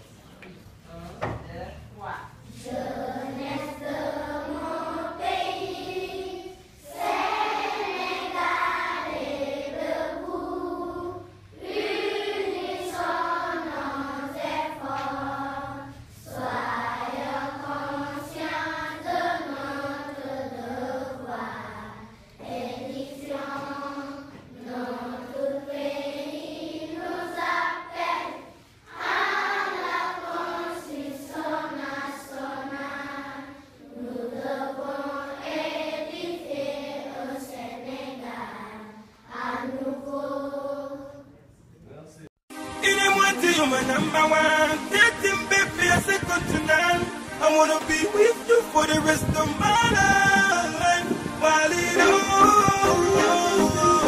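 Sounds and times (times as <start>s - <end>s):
children's choir singing: 2.4s - 41.3s, 42.5s - 54.0s.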